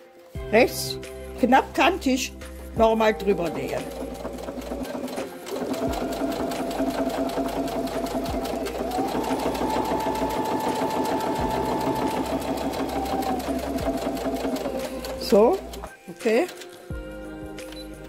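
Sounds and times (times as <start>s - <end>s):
sewing machine stitching: 3.3s - 16.8s.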